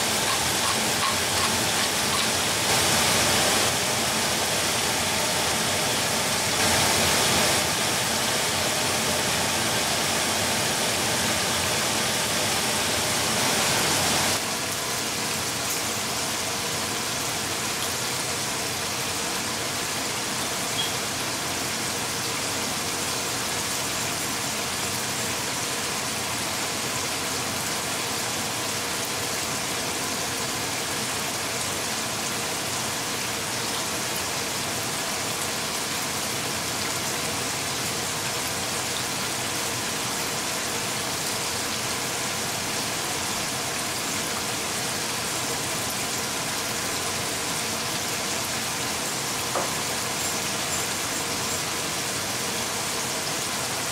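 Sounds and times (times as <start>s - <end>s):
steady hiss: 0.0s - 14.7s.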